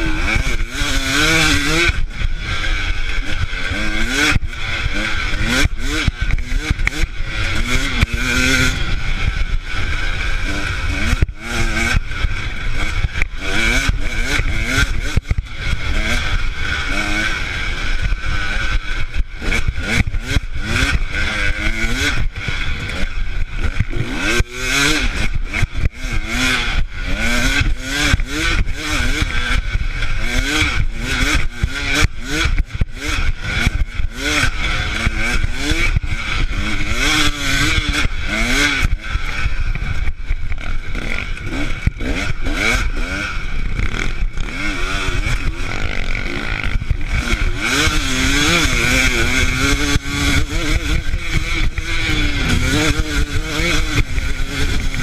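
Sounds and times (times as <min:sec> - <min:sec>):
dirt bike engine revving: 0:00.0 - 0:55.0.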